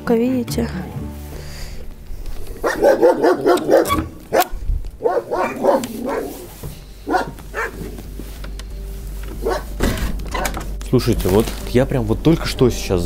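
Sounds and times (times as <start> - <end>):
dog barking: 2.6 - 8.0, 9.4 - 9.8.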